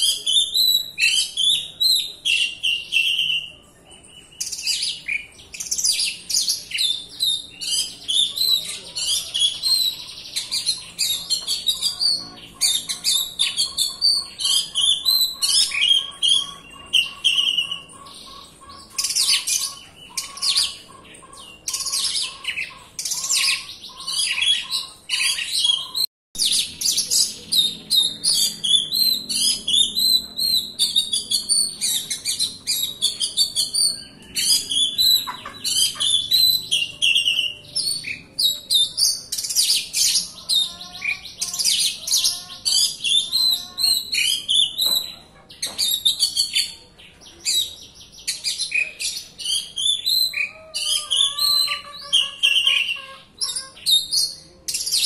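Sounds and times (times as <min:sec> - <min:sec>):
bird singing whistles and chirps: 0:00.0 - 0:03.5, 0:21.7 - 0:40.7, 0:47.4 - 0:55.0.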